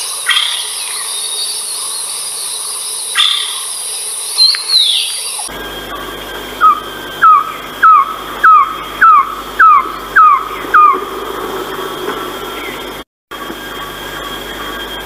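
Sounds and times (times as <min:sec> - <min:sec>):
bird calling short falling notes: 0:06.6 - 0:13.0.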